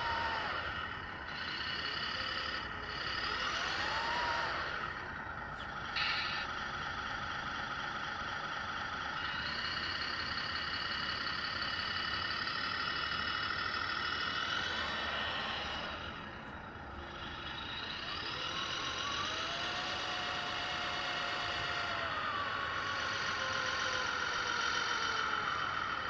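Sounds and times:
model truck high whine: 0:00.0 - 0:26.0
short burst of noise: 0:06.0 - 0:06.5.

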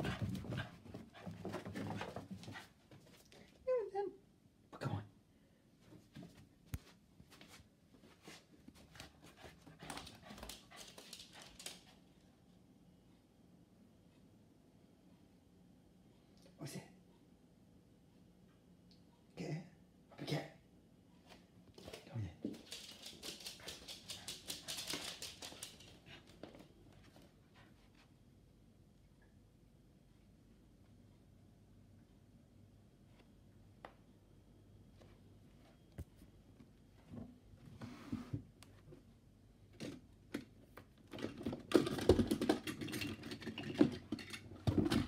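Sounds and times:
dog claws clicking on floor: 0:09.9 - 0:12.0, 0:22.5 - 0:26.2.

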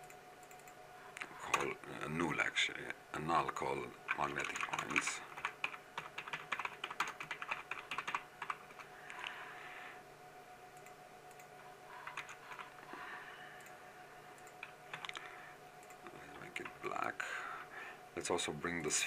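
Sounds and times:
keyboard typing: 0:00.0 - 0:00.8, 0:04.1 - 0:09.4, 0:10.8 - 0:12.8, 0:14.4 - 0:16.8
faint steady hum: 0:00.0 - 0:19.0.

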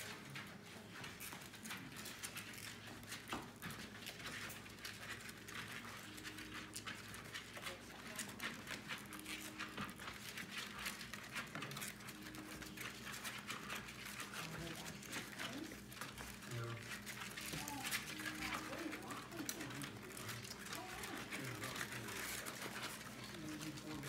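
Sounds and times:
puppies suckling wet clicks: 0:01.2 - 0:24.0.

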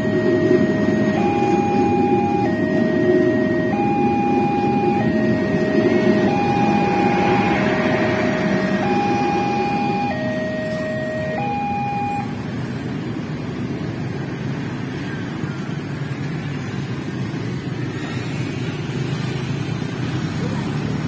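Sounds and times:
two-tone crossing alarm chime: 0:00.0 - 0:12.5
motorcycle and car engines: 0:00.0 - 0:21.0.

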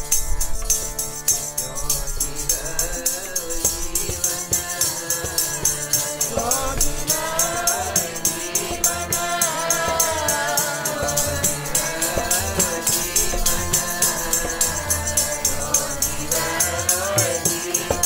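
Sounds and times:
harmonium: 0:00.0 - 0:18.0
jingling percussion beat: 0:00.0 - 0:18.0
group voices singing: 0:05.0 - 0:18.0.

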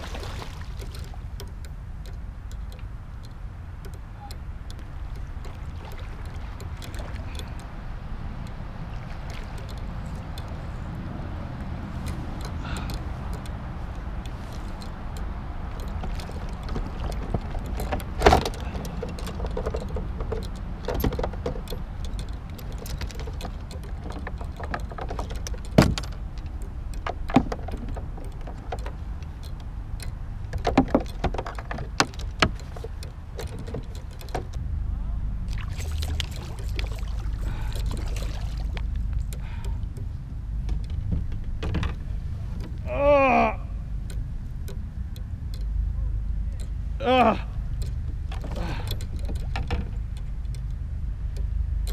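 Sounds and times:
water splashing against a hull: 0:00.0 - 0:01.6, 0:04.1 - 0:10.8, 0:11.5 - 0:29.5, 0:35.5 - 0:40.2
steady low rumble: 0:00.0 - 0:51.9
sharp knocks and rattles: 0:08.4 - 0:34.6, 0:35.5 - 0:42.8, 0:47.7 - 0:51.9.

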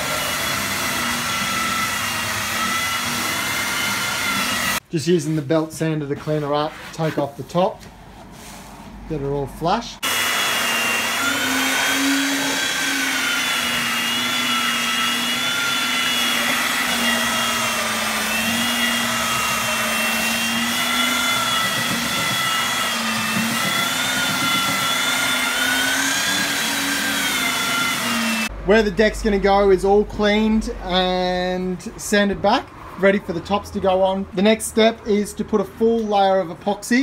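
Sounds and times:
belt sander on wood: 0:00.0 - 0:04.8, 0:10.0 - 0:28.5.

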